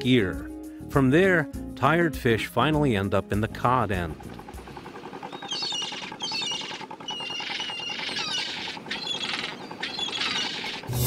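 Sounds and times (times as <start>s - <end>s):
gulls calling: 3.5s - 11.0s.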